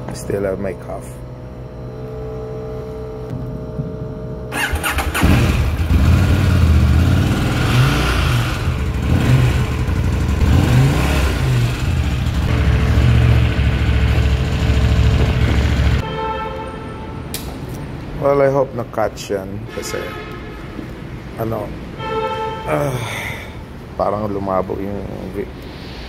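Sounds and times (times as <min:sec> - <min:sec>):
motorcycle engine cranking: 0:04.5 - 0:06.4
motorcycle engine revving: 0:04.5 - 0:16.0.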